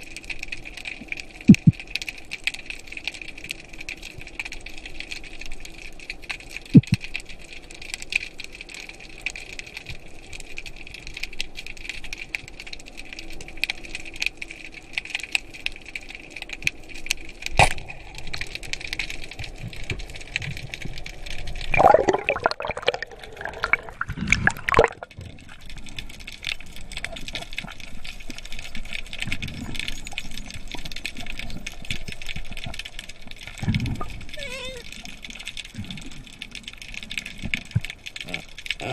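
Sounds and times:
underwater hiss and crackle: 0.0s - 38.9s
water gurgling and bubbling: 1.5s - 1.8s, 21.5s - 25.8s.

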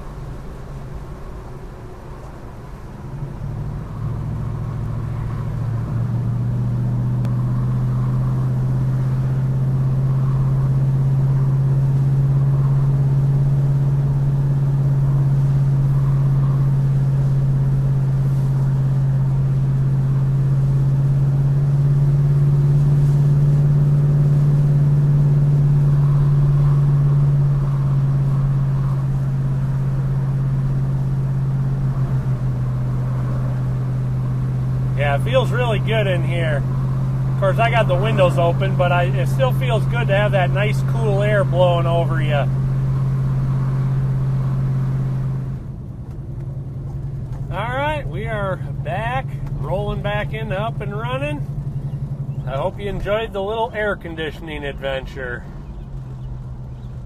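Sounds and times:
car engine droning at speed: 0.0s - 57.0s.

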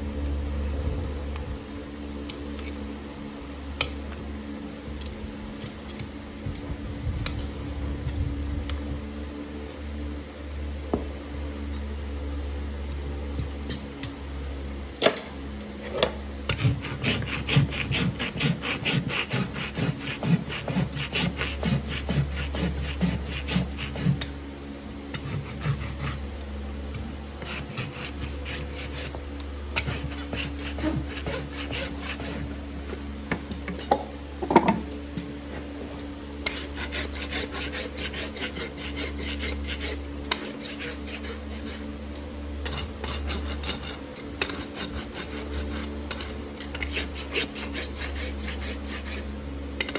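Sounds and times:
rasp filing horse hoof: 16.0s - 24.4s, 25.1s - 26.4s, 27.4s - 33.1s, 36.4s - 42.0s, 42.6s - 49.9s.

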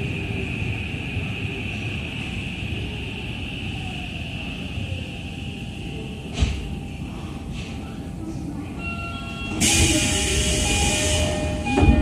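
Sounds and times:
air hiss of doors opening: 9.6s - 11.4s.

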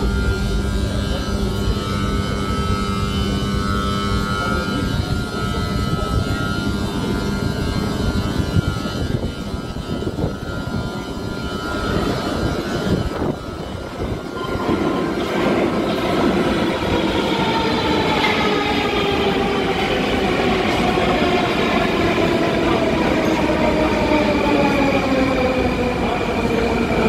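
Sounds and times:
train rumbling in tunnel: 0.0s - 27.0s.

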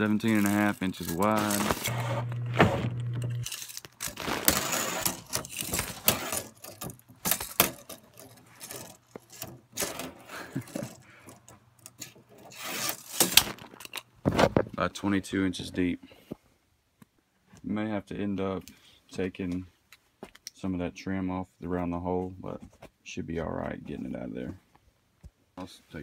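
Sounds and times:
low steady hum: 0.0s - 3.7s
handling noise rubbing and scraping: 0.0s - 16.4s.

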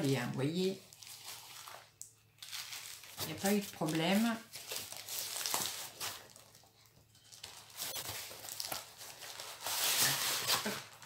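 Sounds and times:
packaging crinkling and tearing: 0.0s - 11.0s.

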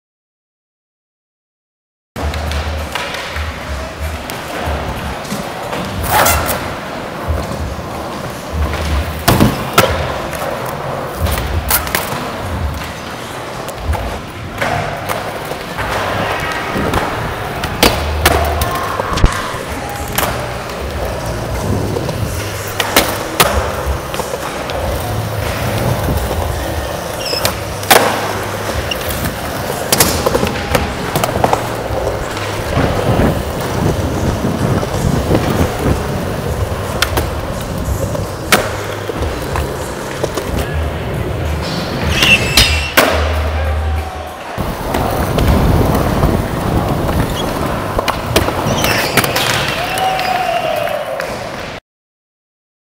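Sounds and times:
skateboard clacks and thuds: 2.2s - 10.6s
skateboard wheels rolling on concrete: 2.2s - 51.8s.

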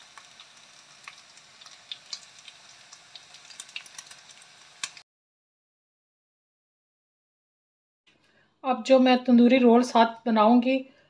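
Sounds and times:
chicken sizzling in oil: 0.0s - 5.0s.

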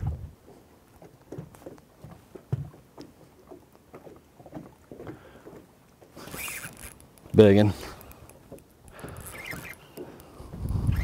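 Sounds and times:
faint knocks and taps on boat: 0.0s - 6.2s.

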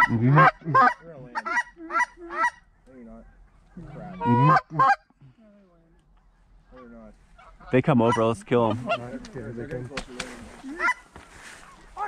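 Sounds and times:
geese honking: 0.0s - 5.1s, 6.6s - 9.5s, 10.6s - 12.0s.

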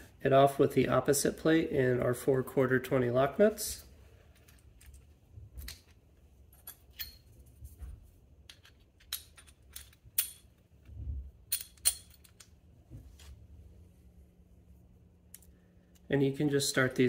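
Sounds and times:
small hardware clicking and clinking: 4.4s - 7.3s, 8.5s - 10.6s, 11.5s - 12.6s.

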